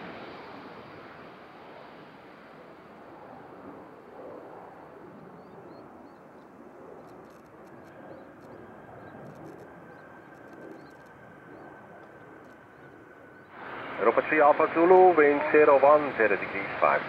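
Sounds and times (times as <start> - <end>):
small birds chirping: 5.4 - 13.5
faint rapid clicking: 6.4 - 13.2.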